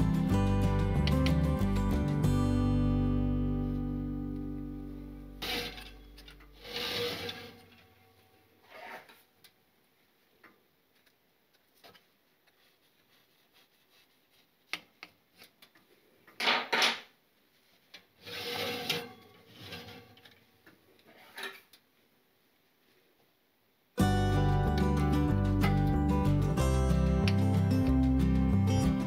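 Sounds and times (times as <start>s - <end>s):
cake pan rasping on oven rack: 6.6s - 7.7s.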